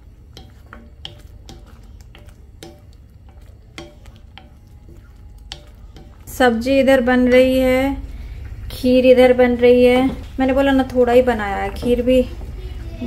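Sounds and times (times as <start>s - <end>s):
spatula knocking and scraping pan: 0.0s - 7.8s.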